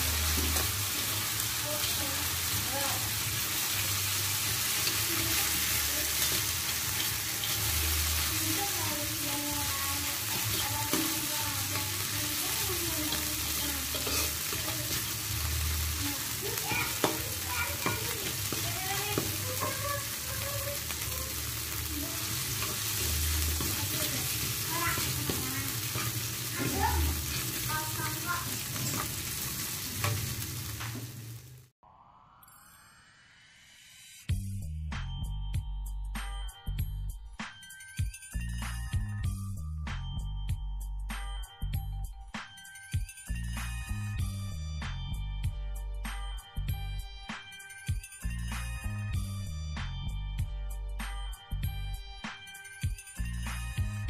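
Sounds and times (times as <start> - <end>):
spice paste sizzling in oil: 0.0 - 31.7
metal ladle scraping a wok: 13.8 - 15.2, 22.4 - 27.7, 28.6 - 30.4.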